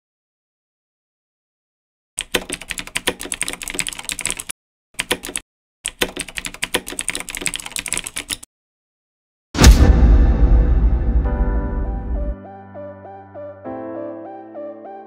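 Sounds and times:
rapid keyboard key clicks: 2.2 - 8.5.

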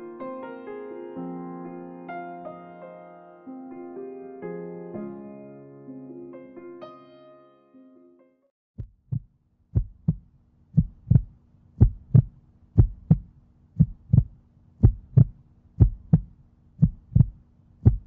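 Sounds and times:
heartbeat double thump: 8.8 - 10.2, 10.8 - 18.0.

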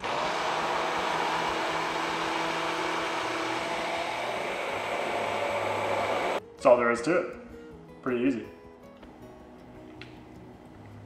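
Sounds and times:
immersion blender running: 0.0 - 6.4.

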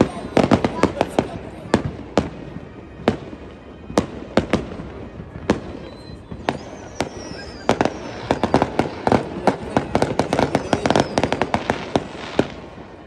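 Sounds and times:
falling firework whistle: 0.0 - 13.0
crackling firework pops: 3.9 - 12.6.

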